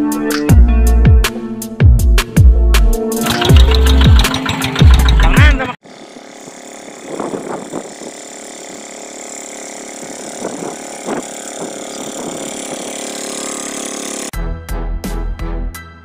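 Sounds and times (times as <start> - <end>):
diesel hand tractor engine running: 3.2 - 14.3.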